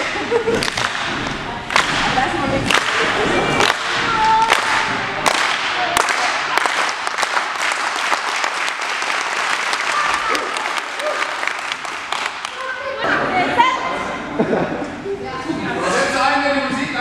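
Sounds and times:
team voices: 0.0s - 6.8s
sharp hand claps: 0.0s - 12.7s.

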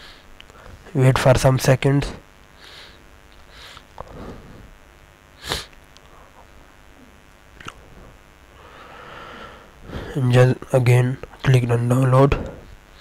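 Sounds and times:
room hiss: 0.0s - 13.0s
person sniffing: 2.6s - 4.7s, 5.4s - 5.8s.

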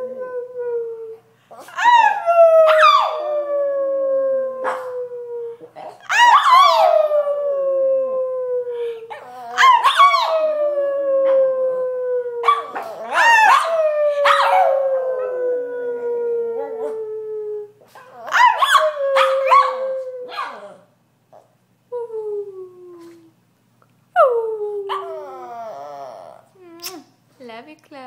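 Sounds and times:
dog howling: 1.8s - 20.8s.

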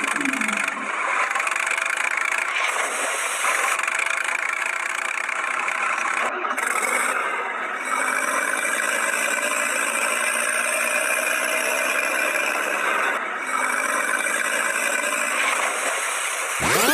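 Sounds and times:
tractor engine running: 0.0s - 16.9s.

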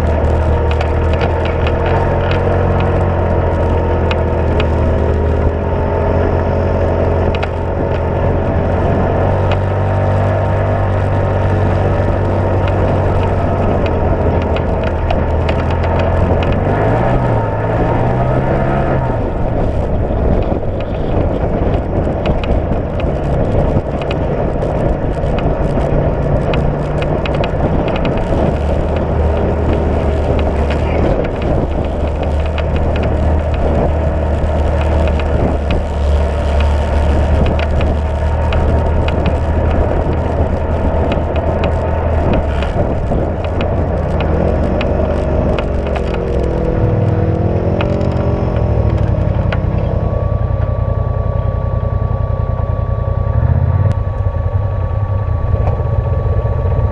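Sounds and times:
utility vehicle engine running: 0.0s - 56.9s
tyres on gravel: 7.2s - 49.7s.

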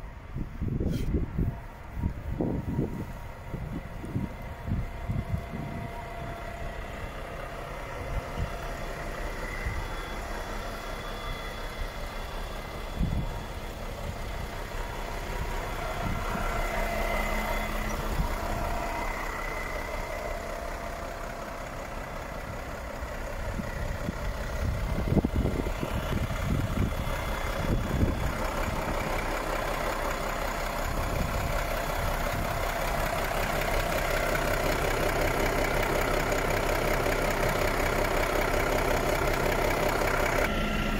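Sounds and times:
diesel truck engine idling: 0.0s - 40.9s.

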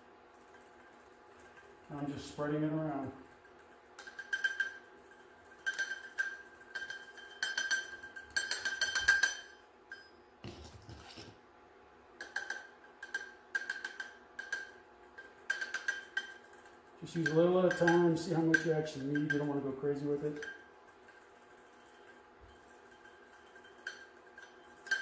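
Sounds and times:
metal utensil tapping mesh strainer: 17.1s - 19.5s.

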